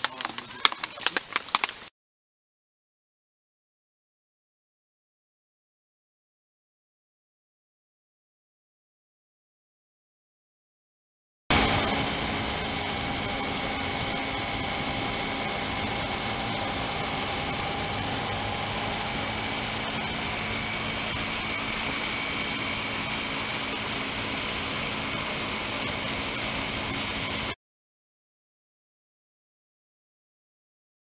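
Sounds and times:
motorcycle engine hum: 0.0s - 1.9s, 11.5s - 27.6s
road noise: 0.0s - 1.9s, 11.5s - 27.6s.

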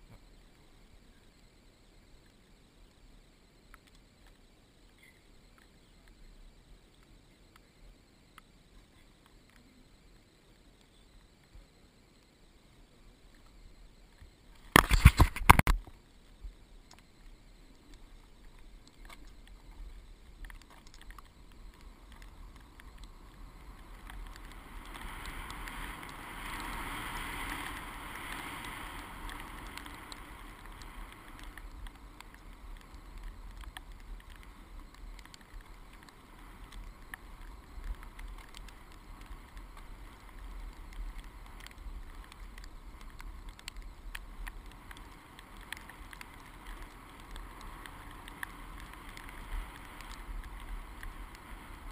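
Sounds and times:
small clicks: 2.2s - 51.9s
wind rushing over camera: 5.4s - 51.9s
skis sliding over snow: 14.5s - 15.7s, 16.4s - 51.9s.

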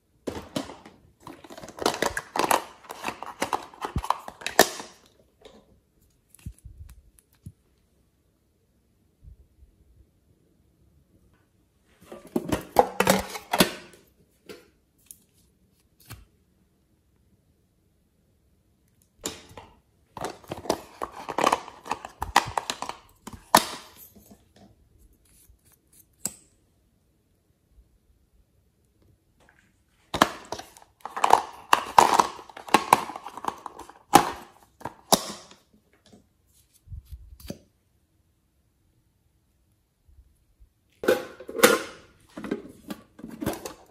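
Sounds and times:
plastic tube clicking and rustling: 0.3s - 5.6s, 19.2s - 24.8s, 30.1s - 36.2s.

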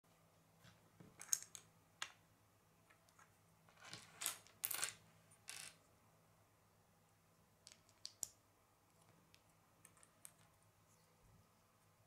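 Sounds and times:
plastic bricks clicking on wooden table: 7.6s - 8.4s.

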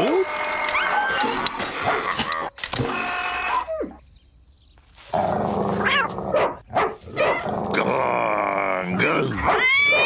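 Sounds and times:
dog barking: 6.3s - 7.5s, 9.4s - 10.0s.

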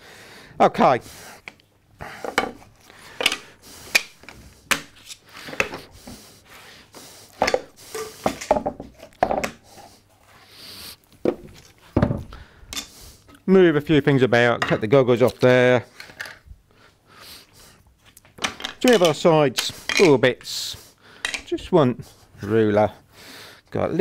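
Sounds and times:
wood pieces clacking and knocking: 2.2s - 5.9s, 7.4s - 9.6s, 11.2s - 12.9s, 18.2s - 20.5s, 21.2s - 21.5s.

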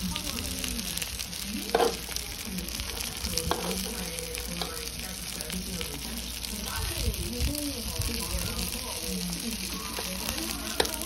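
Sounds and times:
batter sizzling in oil: 0.0s - 11.0s
utensil tapping and scraping pan: 1.7s - 2.1s, 3.4s - 4.0s.

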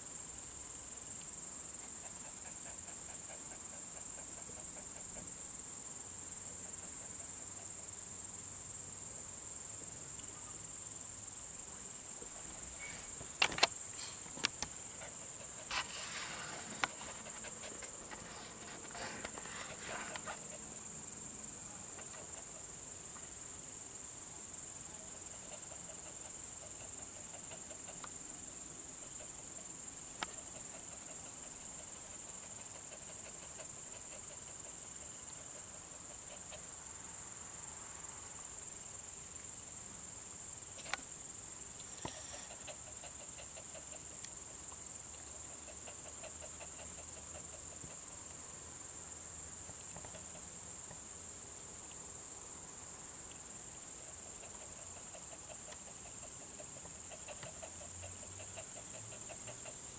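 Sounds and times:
crickets chirring: 0.0s - 59.9s
rustling: 12.8s - 20.6s.

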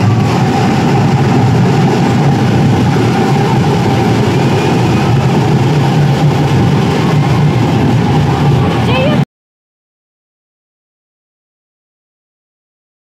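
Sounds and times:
low rumble of vehicle engines: 0.0s - 9.2s
crowd noise: 0.0s - 9.3s.

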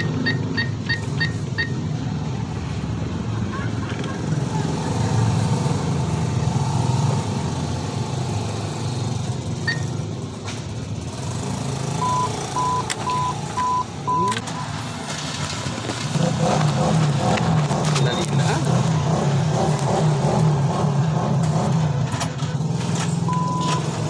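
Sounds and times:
short electronic beeps: 0.0s - 1.8s, 9.6s - 10.0s, 12.0s - 14.7s, 23.3s - 23.8s
traffic rumble: 0.0s - 24.0s.

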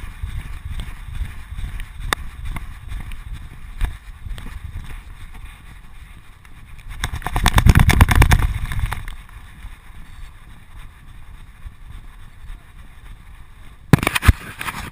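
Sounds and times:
wind buffeting: 0.0s - 13.9s
rapid rattling knocks: 7.0s - 9.0s.

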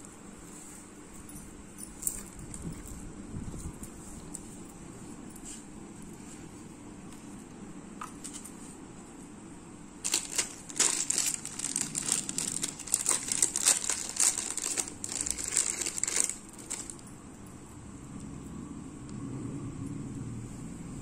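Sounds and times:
plastic packaging crinkling: 10.0s - 17.1s.

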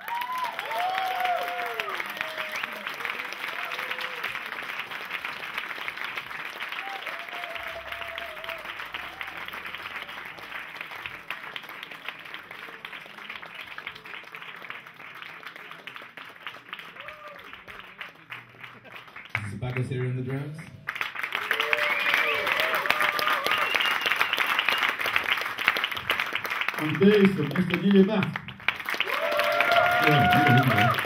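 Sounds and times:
audience applauding: 0.0s - 31.0s.

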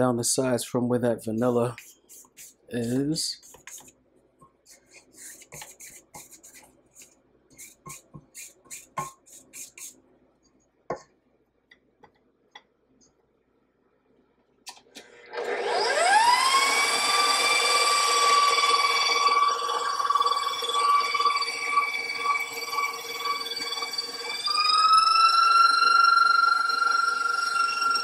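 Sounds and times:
spatula scraping steel bowl: 4.7s - 10.0s.

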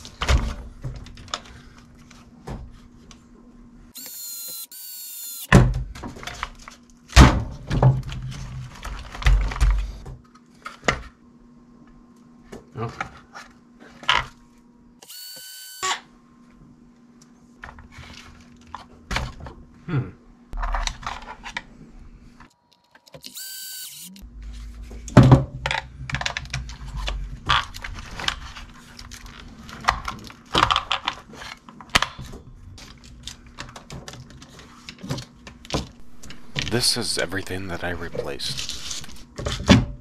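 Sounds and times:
electric screwdriver whirring: 4.0s - 5.5s, 15.0s - 15.9s, 23.2s - 24.2s.

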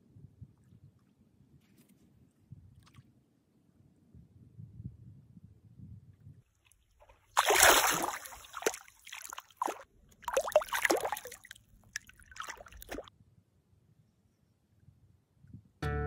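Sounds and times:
water splashing as feet wade: 7.3s - 13.1s.

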